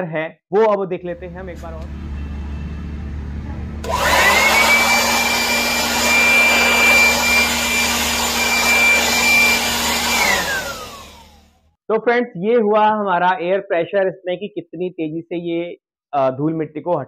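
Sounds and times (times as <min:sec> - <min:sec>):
electric air blower whining: 0:03.1 - 0:11.6.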